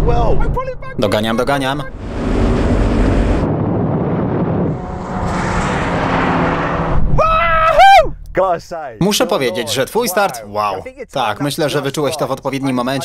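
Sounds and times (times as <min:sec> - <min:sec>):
cars accelerating in drag race: 0:01.9 - 0:07.2.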